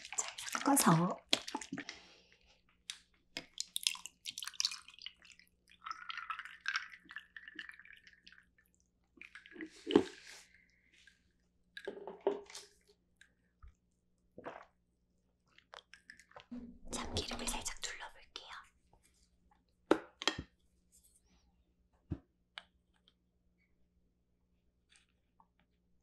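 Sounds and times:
drink pouring into glass mug: 3.4s - 10.0s
person gulping: 9.2s - 10.2s, 14.4s - 14.8s.

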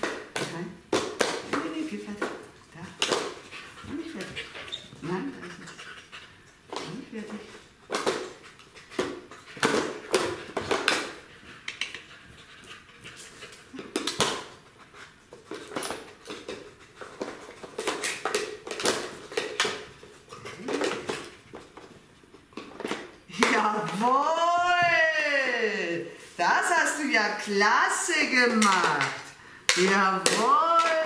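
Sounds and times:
puppy sounds: 1.4s - 17.6s, 18.8s - 22.0s.

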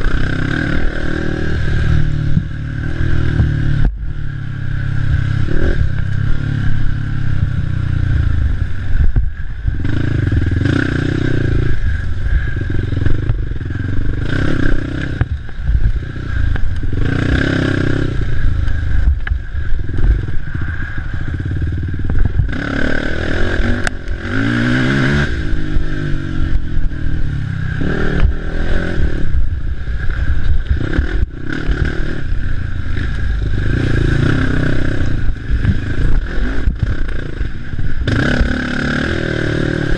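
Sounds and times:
quad engine revving: 0.0s - 3.9s, 9.8s - 11.9s, 12.6s - 19.1s, 21.2s - 29.5s, 30.7s - 39.9s.

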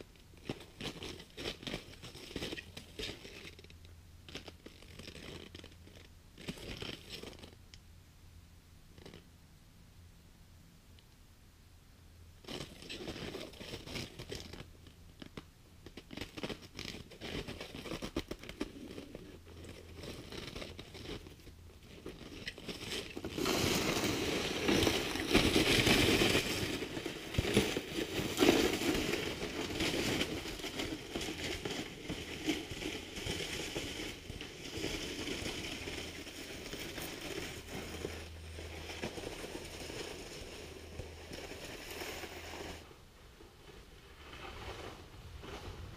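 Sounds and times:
sled scraping over snow: 22.0s - 45.9s.

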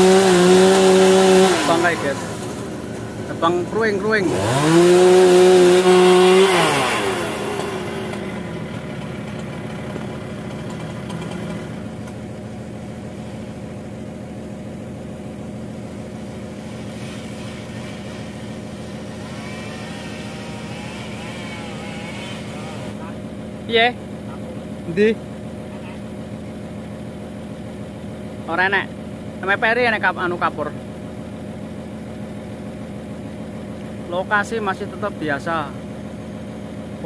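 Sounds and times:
chainsaw at full throttle: 0.0s - 23.7s
chainsaw engine idling: 0.0s - 37.0s.

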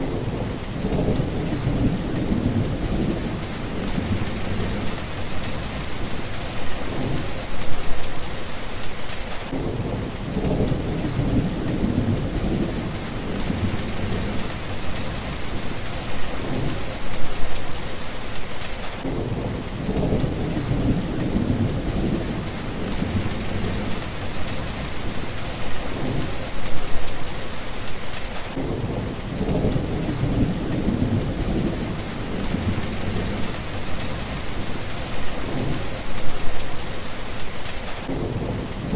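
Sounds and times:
thunder rumbling: 0.0s - 8.0s, 9.5s - 17.7s, 19.0s - 27.0s, 28.5s - 36.7s, 38.0s - 38.9s
heavy rain: 0.0s - 38.9s.

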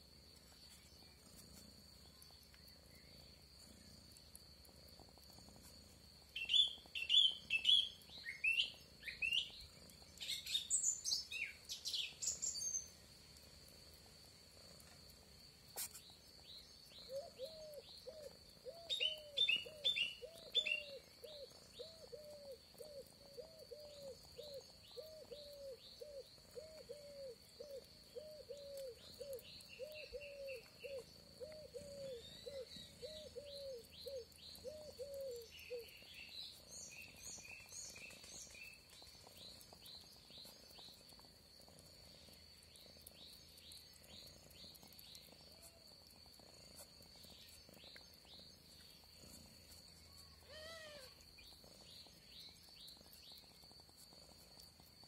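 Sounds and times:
high-pitched insect trill: 4.6s - 13.1s, 14.6s - 55.0s
bird chirps: 6.4s - 12.9s, 16.4s - 41.0s.

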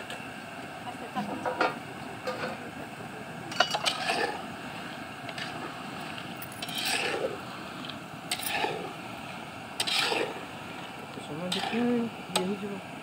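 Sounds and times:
food frying in hot oil: 0.0s - 13.0s
metal spatula scraping pan: 3.5s - 4.4s, 6.6s - 7.4s, 8.3s - 8.9s, 9.8s - 10.4s, 11.5s - 12.0s.

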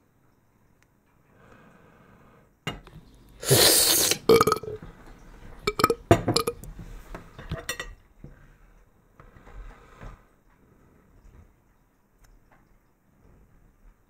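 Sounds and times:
loud raspy burp: 3.4s - 4.8s, 5.7s - 6.6s
drinking glass clinking on table: 5.7s - 6.6s.

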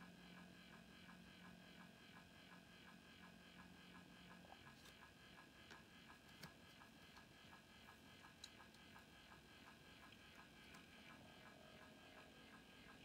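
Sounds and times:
soft ticking: 3.2s - 13.0s.

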